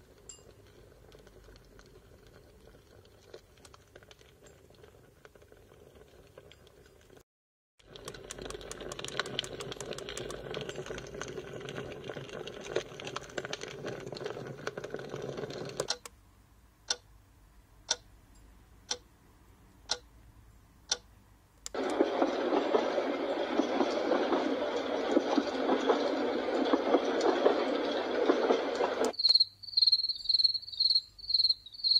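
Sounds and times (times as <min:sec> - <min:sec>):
crackly noise with clicks: 0:00.0 - 0:07.2, 0:07.8 - 0:16.2, 0:20.8 - 0:29.5
clock ticking: 0:16.9 - 0:17.1, 0:17.9 - 0:19.1, 0:19.8 - 0:20.1, 0:20.9 - 0:22.0
steady rushing noise: 0:21.8 - 0:29.1.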